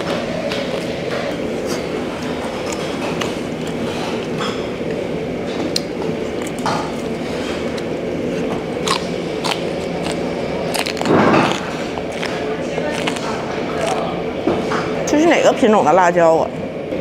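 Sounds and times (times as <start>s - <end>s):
steady background hum: 0.0s - 17.0s
person chewing: 0.4s - 14.2s
crunchy bites: 7.7s - 14.1s.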